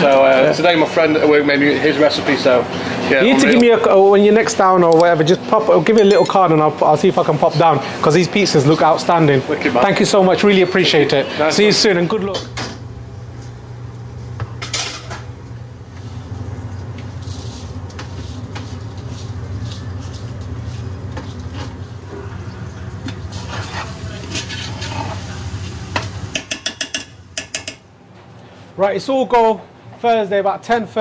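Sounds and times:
spoon clinking against pot: 0:06.0 - 0:06.4.

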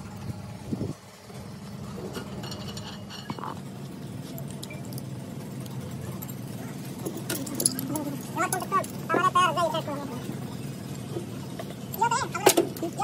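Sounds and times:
steady low engine hum: 0:00.0 - 0:13.0
metallic clinks of spanner: 0:04.2 - 0:09.0.

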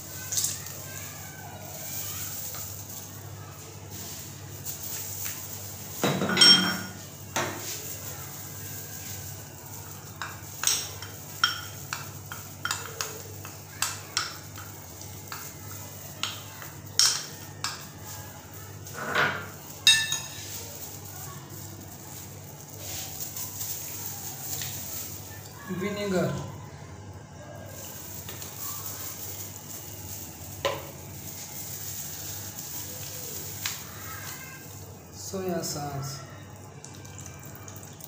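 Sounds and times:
dishes and utensils clinking: 0:04.6 - 0:07.9, 0:10.0 - 0:15.5, 0:16.2 - 0:21.0.

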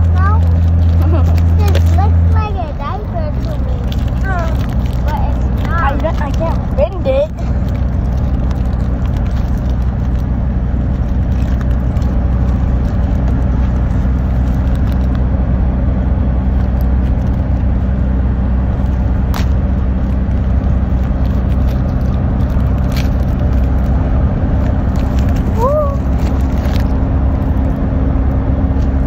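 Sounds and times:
car cabin road rumble: 0:00.0 - 0:29.0.

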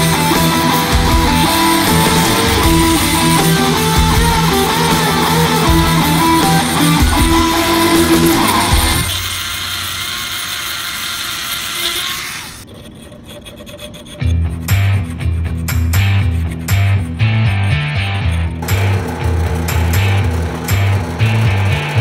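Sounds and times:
electric guitar music: 0:00.0 - 0:09.1, 0:16.8 - 0:22.0
hissing grinding noise: 0:00.0 - 0:15.4.

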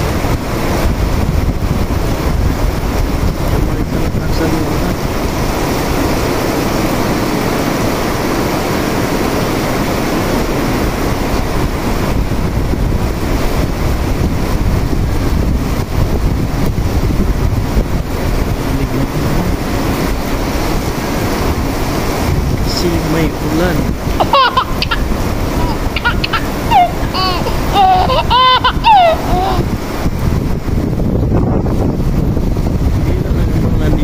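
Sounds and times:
heavy rain on concrete: 0:00.0 - 0:34.0.

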